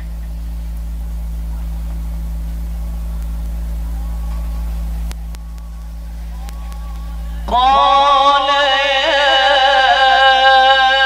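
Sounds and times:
faint wavering tones: 0:00.0 - 0:08.5
electrical hum and hiss: 0:00.0 - 0:11.0.

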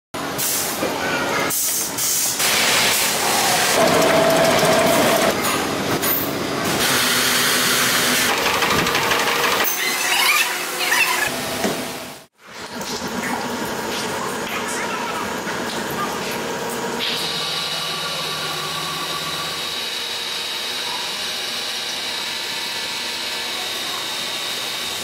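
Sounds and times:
factory machinery hissing: 0:00.3 - 0:12.2, 0:16.2 - 0:25.0
squeaks: 0:09.7 - 0:11.3.

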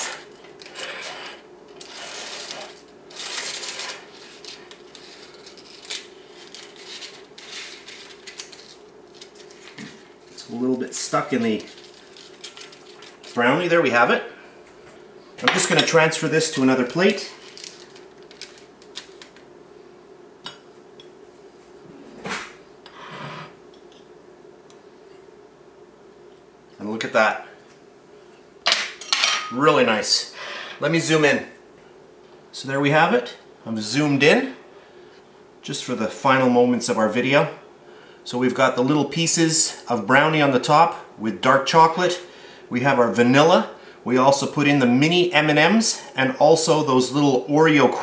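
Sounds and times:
spatula scraping: 0:00.0 - 0:10.4
plastic strip crinkling: 0:01.8 - 0:10.4, 0:11.5 - 0:13.4, 0:17.0 - 0:19.4.

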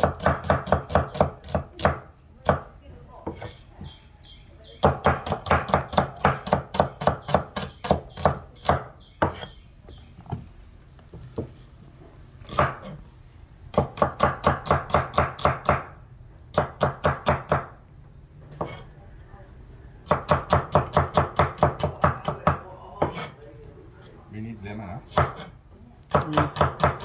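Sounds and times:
cleaver chopping on wooden block: 0:00.0 - 0:02.7, 0:04.8 - 0:09.6, 0:12.5 - 0:13.0, 0:13.7 - 0:15.9, 0:20.1 - 0:23.3, 0:26.1 - 0:27.0.

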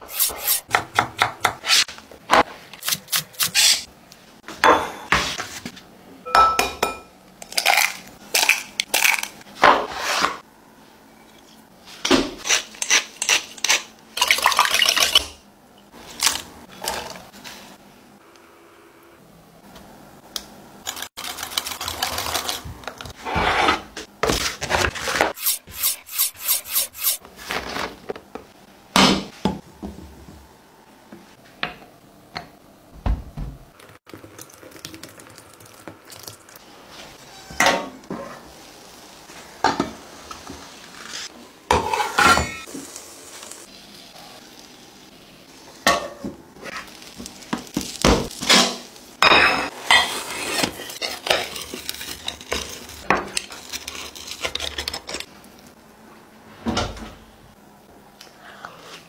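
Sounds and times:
spoon scraping in glass bowl: 0:25.4 - 0:27.2.

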